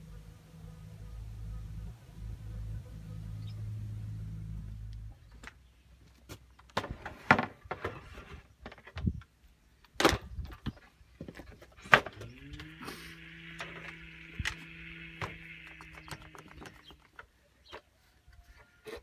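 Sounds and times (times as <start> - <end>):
low hum: 0.0 - 5.8.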